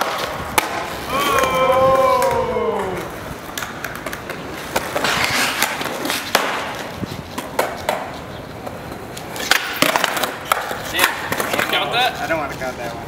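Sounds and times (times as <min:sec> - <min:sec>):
skateboard clacking: 0:00.0 - 0:13.0
skateboard wheels rolling on concrete: 0:00.0 - 0:13.0.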